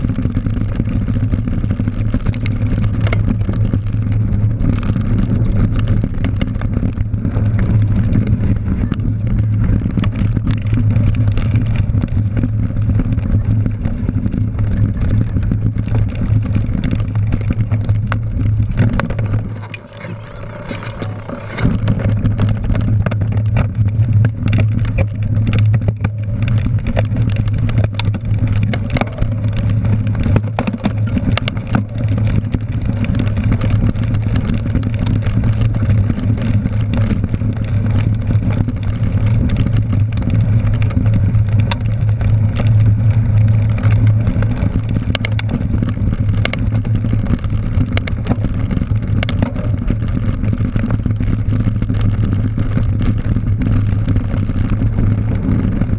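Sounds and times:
bike clicks and rattles: 0.0s - 55.9s
wind and tyre rumble: 0.0s - 55.9s.

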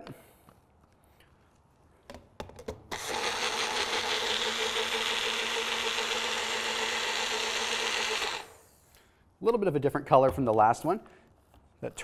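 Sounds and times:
blender motor whining: 2.9s - 8.6s.

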